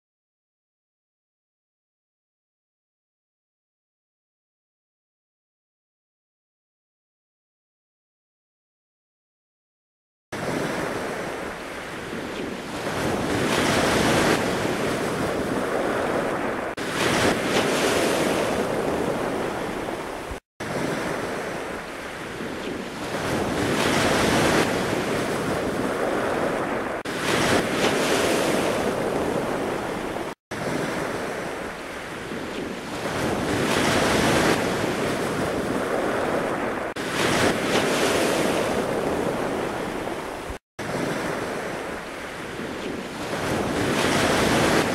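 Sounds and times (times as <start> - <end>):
ocean waves washing in: 10.4 - 44.9.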